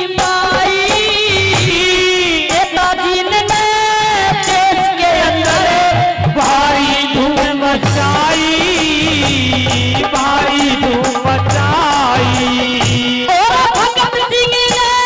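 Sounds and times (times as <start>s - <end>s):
woman singing into a microphone: 0.0s - 15.0s
low drum beats: 5.3s - 14.0s.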